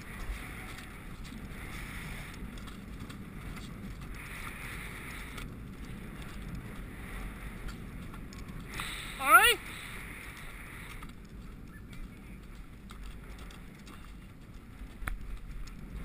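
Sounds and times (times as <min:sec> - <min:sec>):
hooves galloping on turf: 0:00.0 - 0:16.0
wind on microphone: 0:00.0 - 0:16.0.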